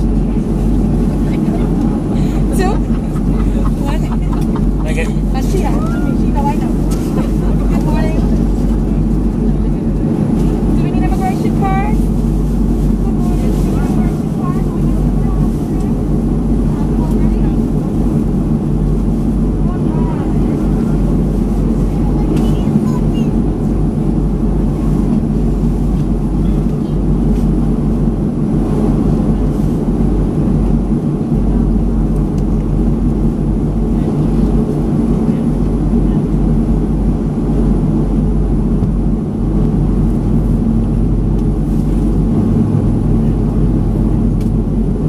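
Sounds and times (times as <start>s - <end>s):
aircraft cabin rumble and hum: 0.0s - 45.0s.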